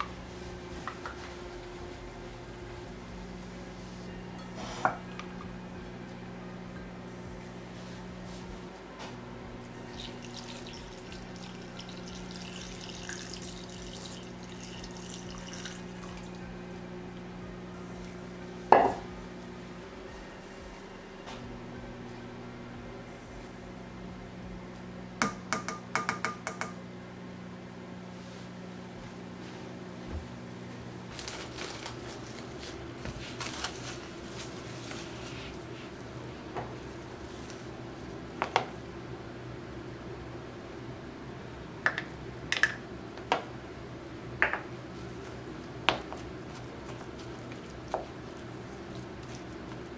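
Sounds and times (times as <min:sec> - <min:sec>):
faint steady hum: 0:00.0 - 0:49.9
water pouring into pot: 0:09.8 - 0:16.4
plastic cling film crinkling: 0:31.1 - 0:35.7.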